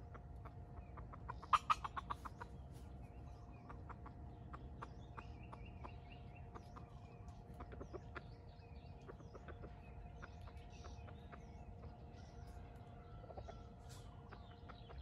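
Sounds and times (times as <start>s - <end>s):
junglefowl clucking: 0.0s - 8.3s.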